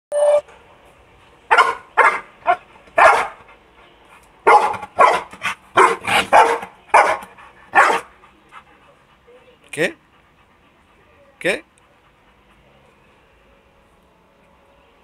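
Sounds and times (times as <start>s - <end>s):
dog barking: 1.5s - 3.4s, 4.5s - 8.1s.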